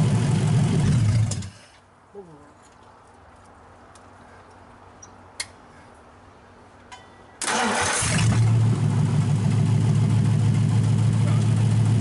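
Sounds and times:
car engine starting and running: 0.0 - 1.5, 7.4 - 12.0.

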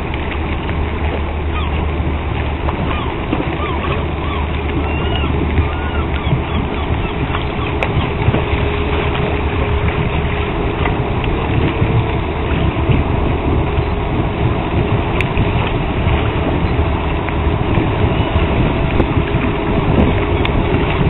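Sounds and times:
ship engine rumbling: 0.0 - 21.0.

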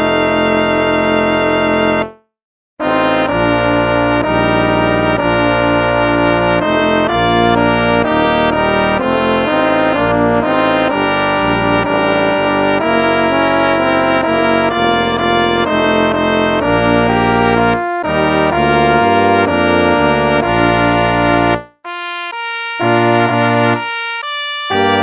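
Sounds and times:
instrumental hymn in brass tone: 0.0 - 2.2, 2.8 - 25.0.

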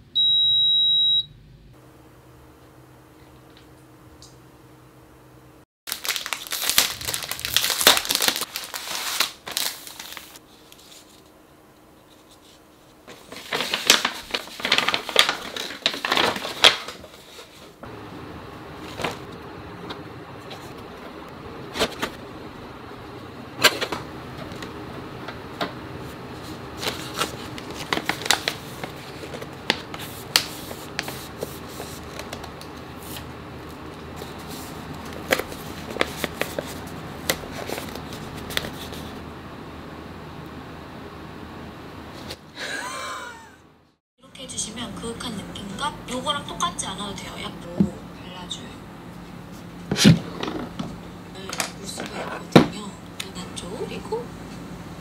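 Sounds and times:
plastic bags crinkling: 5.9 - 10.4, 13.1 - 17.5, 26.8 - 32.5
paper bags rustling: 5.9 - 11.2, 13.0 - 17.8, 26.0 - 39.2.

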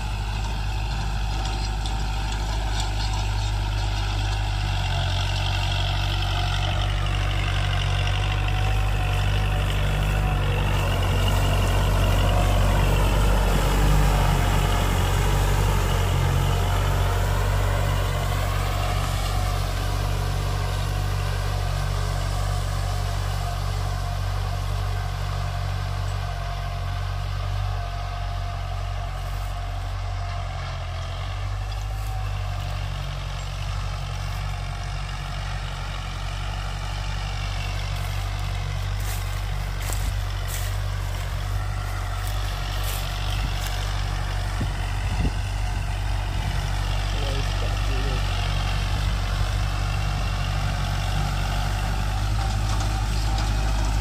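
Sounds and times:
tractor engine running under load: 0.0 - 54.0.

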